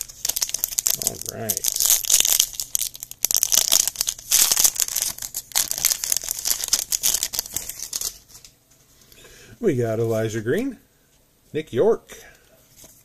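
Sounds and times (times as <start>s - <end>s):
foil wrapper tearing and crinkling: 0.0s - 8.5s.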